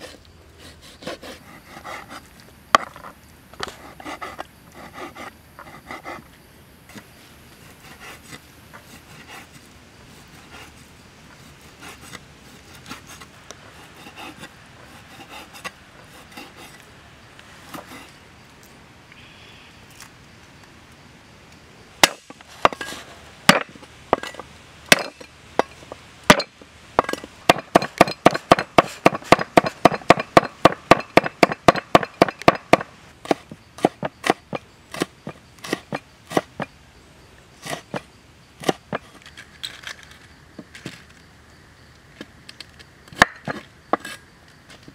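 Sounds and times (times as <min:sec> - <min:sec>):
cleaver chopping on wooden board: 0:22.0 - 0:22.8, 0:24.9 - 0:25.7, 0:26.3 - 0:36.6.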